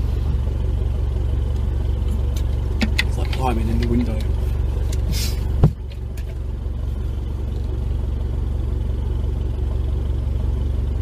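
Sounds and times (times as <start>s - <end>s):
pickup engine idling: 0.0s - 11.0s
thump: 5.6s - 5.8s.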